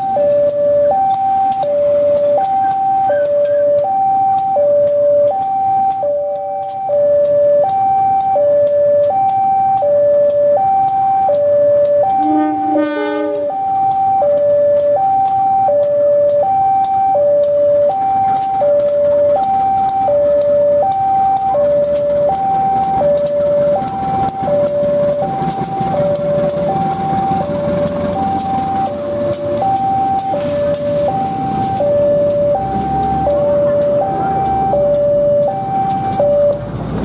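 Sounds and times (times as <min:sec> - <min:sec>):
level crossing two-tone alarm: 0:00.0 - 0:36.8
diesel locomotive rumble: 0:00.0 - 0:37.0
brief separate tone: 0:12.0 - 0:13.6.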